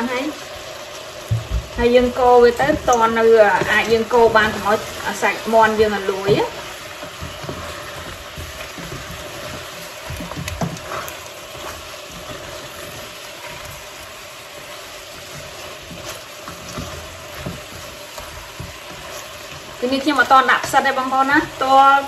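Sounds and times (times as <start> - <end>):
chicken wings sizzling in a pot: 0.0 - 22.0
spatula scraping a metal pot: 14.7 - 20.8.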